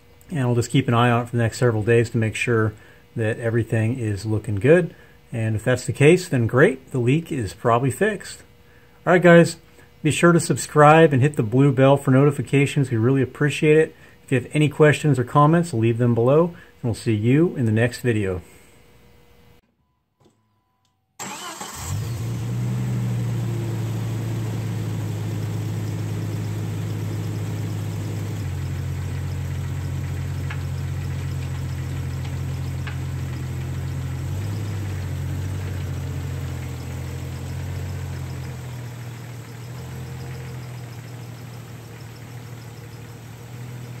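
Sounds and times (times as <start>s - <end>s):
car engine starting and idling: 21.2s - 44.0s.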